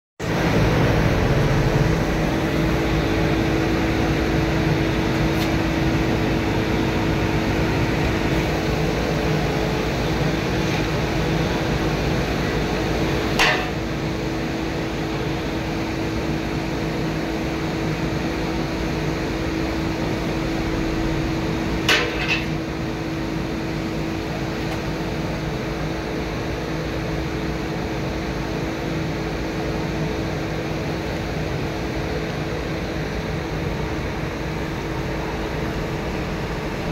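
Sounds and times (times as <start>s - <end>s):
drone of foundry machinery: 0.2s - 36.9s
sharp metal clank: 13.4s - 13.8s, 21.8s - 22.5s.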